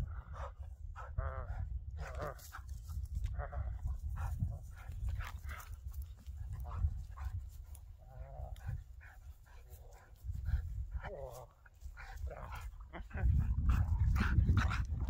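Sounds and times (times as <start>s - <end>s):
dog panting: 4.1s - 15.0s.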